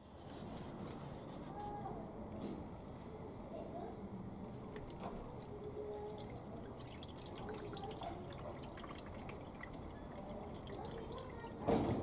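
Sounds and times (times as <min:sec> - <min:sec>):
liquid trickling into a plastic tank: 0:04.7 - 0:12.0.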